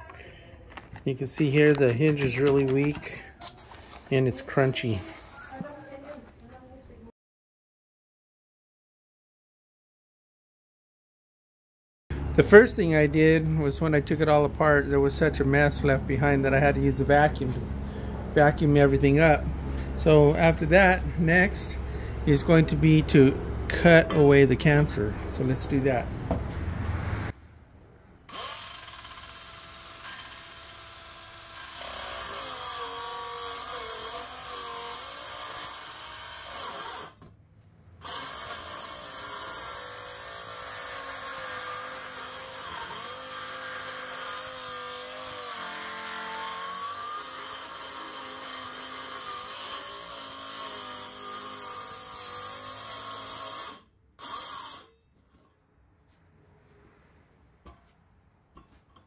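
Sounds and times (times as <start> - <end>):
circular saw cutting wood: 12.2 - 26.1, 28.3 - 37.2, 38.0 - 55.0.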